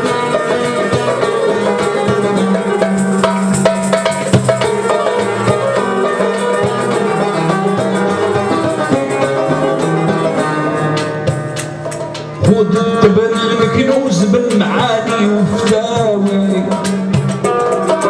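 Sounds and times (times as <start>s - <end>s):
hand percussion: 0.0s - 18.0s
plucked lute: 0.0s - 18.0s.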